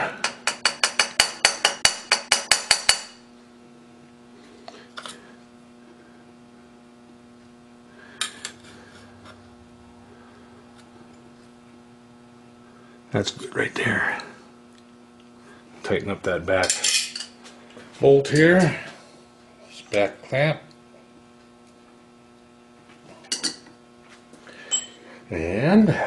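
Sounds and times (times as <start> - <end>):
steady electrical hum: 0.0 - 26.0
wrench tapping on metal: 0.2 - 3.2.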